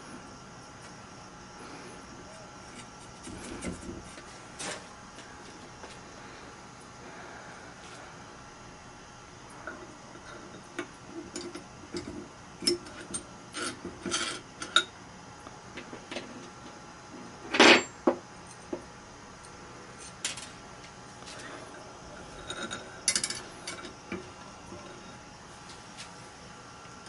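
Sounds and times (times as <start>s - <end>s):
metal bolts clicking and scraping: 22.3s - 23.9s.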